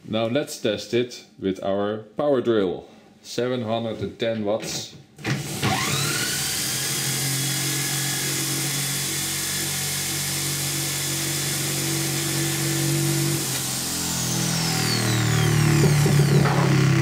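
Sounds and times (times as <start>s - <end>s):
electric drill whining: 5.2s - 17.0s.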